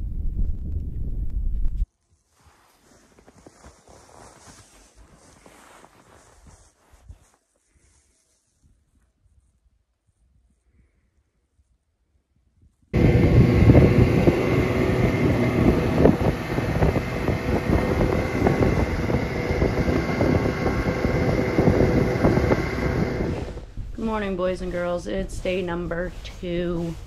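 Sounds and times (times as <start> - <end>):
wind rushing past microphone: 13.0 - 25.6
snowmobile engine running: 13.0 - 26.9.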